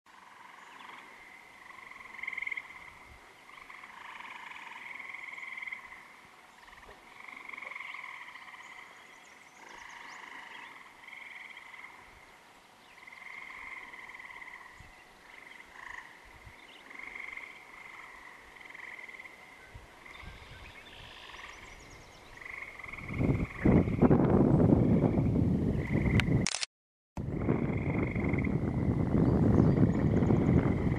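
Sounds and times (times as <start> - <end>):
frogs croaking: 0.1 - 26.4, 27.2 - 30.9
wind on microphone: 19.6 - 26.6, 27.2 - 30.9.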